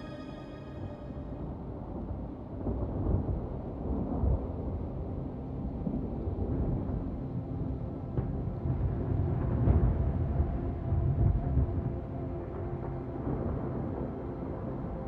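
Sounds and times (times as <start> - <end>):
sustained music notes: 0.0 - 1.6.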